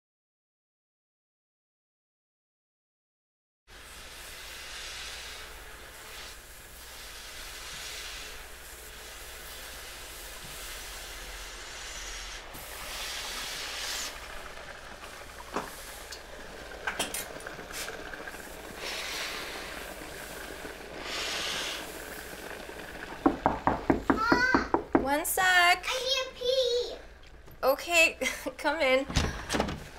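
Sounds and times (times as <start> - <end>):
garment steamer hissing: 3.7 - 25.2.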